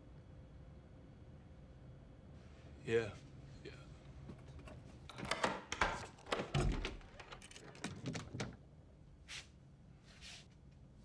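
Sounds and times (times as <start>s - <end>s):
door unlocking clicks and rattles: 4.4s - 8.6s.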